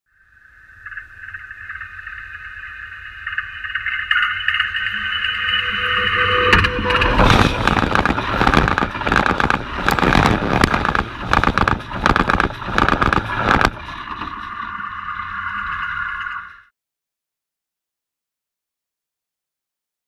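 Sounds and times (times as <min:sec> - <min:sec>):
train rumbling over rails: 0:05.6 - 0:13.8.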